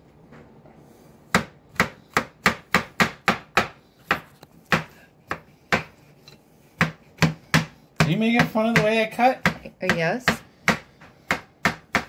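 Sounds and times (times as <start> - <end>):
knife chopping on plastic board: 1.3 - 6.0, 6.7 - 12.0.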